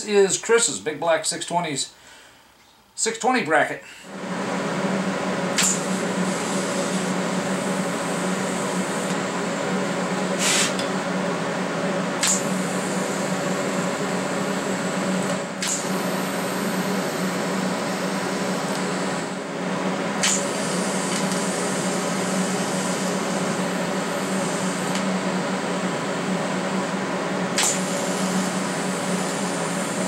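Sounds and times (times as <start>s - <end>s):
welder electrical hum: 2.6s - 30.0s
short high hisses: 10.4s - 10.8s.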